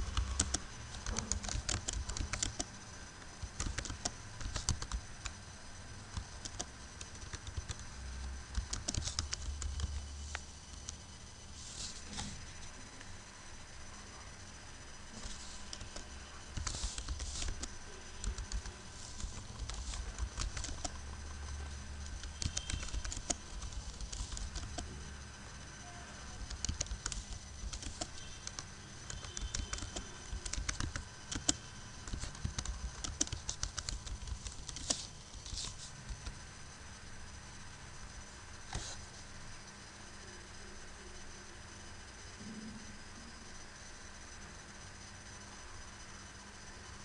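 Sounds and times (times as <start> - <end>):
faint background hum: 0.0 - 47.0.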